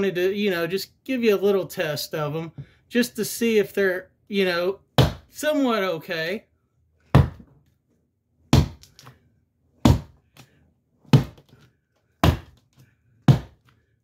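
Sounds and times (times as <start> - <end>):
fist punching into sheetrock: 5.0 - 5.3, 7.1 - 7.5, 8.5 - 8.8, 9.8 - 10.2, 11.1 - 11.4, 12.2 - 12.6, 13.3 - 13.6.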